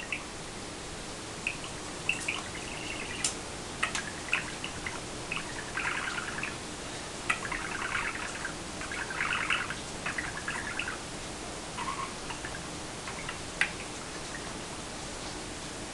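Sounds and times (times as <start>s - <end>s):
budgerigar chattering and warbling: 1.4s - 6.6s, 7.3s - 11.0s, 11.8s - 14.4s.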